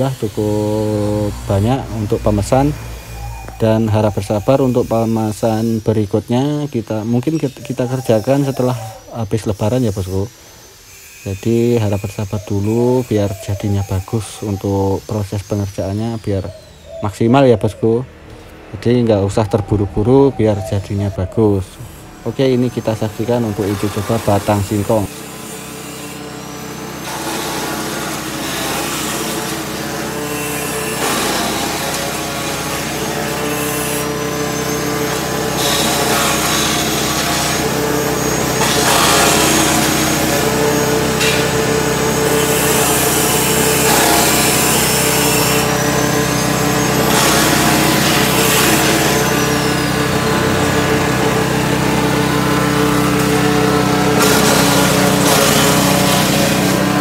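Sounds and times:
blades chopping stalks rasping: 0:18.2 - 0:57.0
petrol engine running: 0:26.4 - 0:57.0.

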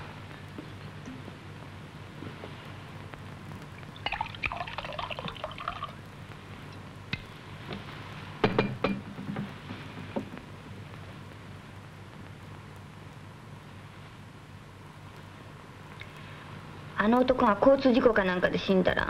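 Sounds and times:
steady low hum: 0:00.0 - 0:19.0
drink gurgling into glass: 0:04.0 - 0:06.0.

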